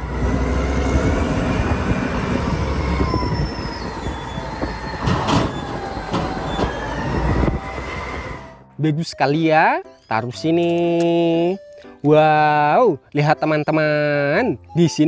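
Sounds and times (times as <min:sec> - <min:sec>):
diesel engine running hard: 0:00.0 - 0:08.6
high whining and squealing: 0:00.0 - 0:08.7
knocks and clatter: 0:04.6 - 0:06.8.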